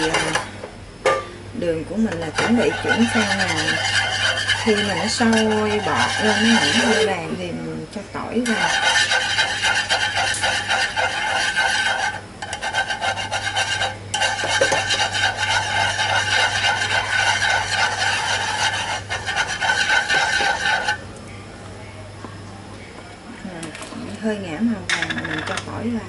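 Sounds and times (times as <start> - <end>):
rasping scrape: 2.2 - 7.1, 8.4 - 21.0.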